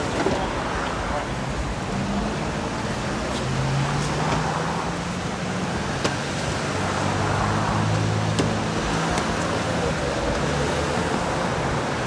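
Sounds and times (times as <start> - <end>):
street traffic noise: 0.0 - 12.0.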